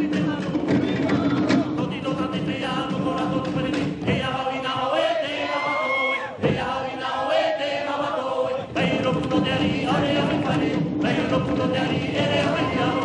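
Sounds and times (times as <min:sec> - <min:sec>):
group of voices chanting: 0:04.2 - 0:13.0.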